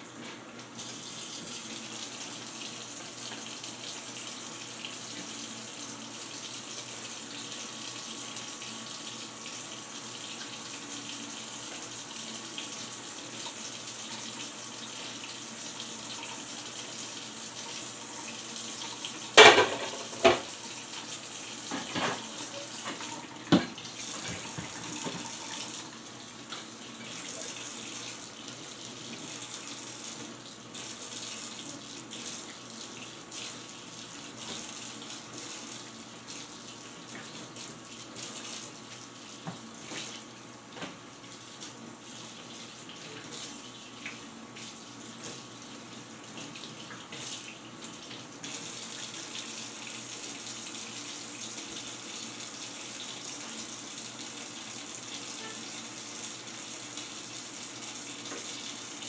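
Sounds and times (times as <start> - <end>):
dishware clanking: 19.4 - 20.5
tap running into steel sink: 19.4 - 20.6, 21.7 - 25.4.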